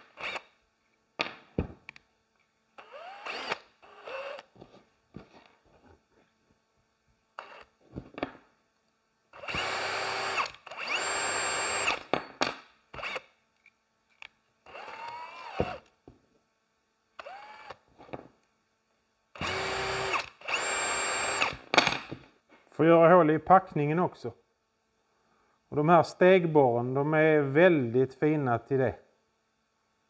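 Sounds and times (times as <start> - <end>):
electric drill whining: 0.1 - 0.5, 2.8 - 4.5, 7.4 - 7.7, 9.4 - 12.0, 13.0 - 13.2, 14.7 - 15.9, 17.2 - 17.8, 19.4 - 21.6.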